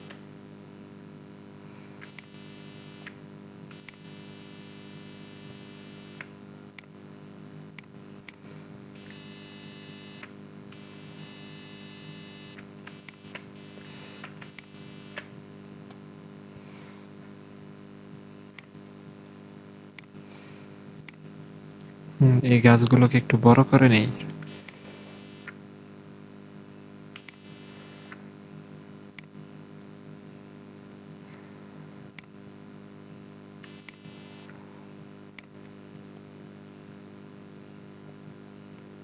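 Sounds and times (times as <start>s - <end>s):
faint electrical hum: 0.0s - 39.0s
computer mouse clicking: 20.0s - 20.2s, 21.0s - 21.2s.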